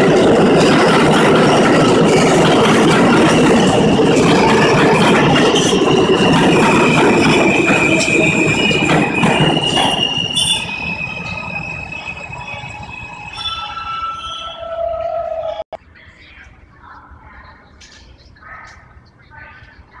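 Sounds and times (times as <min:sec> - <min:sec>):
train wheels rumbling on rails: 0:00.0 - 0:15.6
high wheel squeal: 0:01.0 - 0:15.6.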